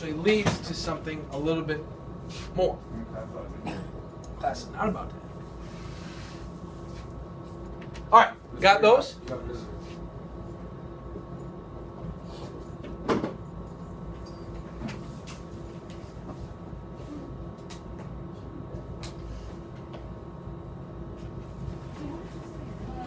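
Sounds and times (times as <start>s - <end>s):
steady hum: 0.0s - 23.0s.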